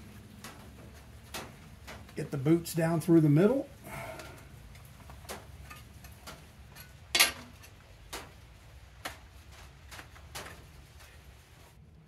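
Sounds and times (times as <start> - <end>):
metal cover plate clicks and knocks: 6.7 - 7.7.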